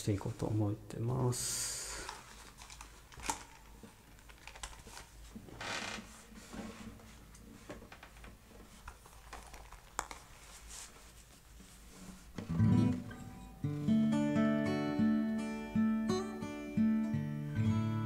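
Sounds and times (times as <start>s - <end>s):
short rustle: 4.8s - 12.5s.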